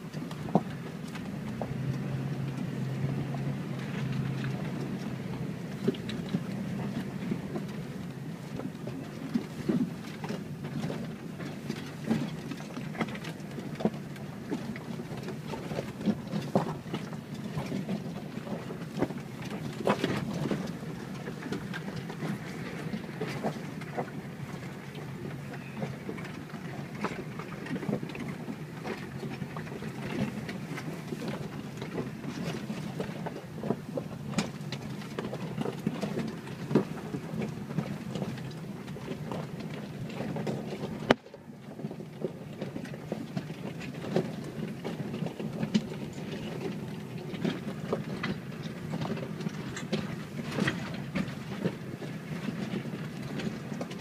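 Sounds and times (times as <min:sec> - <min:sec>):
vehicle engine droning: 0:00.0 - 0:09.9
tires crunching over rocks: 0:00.0 - 0:54.0.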